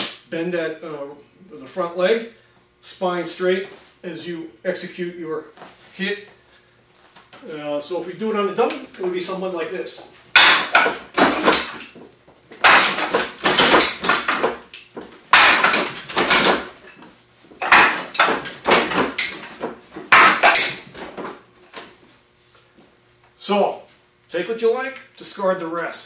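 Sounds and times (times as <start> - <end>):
hands striking wooden dummy: 10.3 - 12.0, 12.6 - 21.4.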